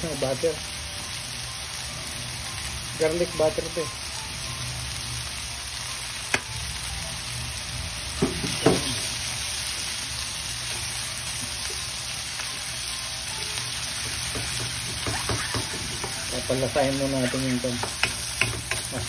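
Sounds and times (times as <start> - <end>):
food sizzling in a wok: 0.0 - 19.0
wooden spatula knocking pan: 14.0 - 16.3, 17.6 - 19.0.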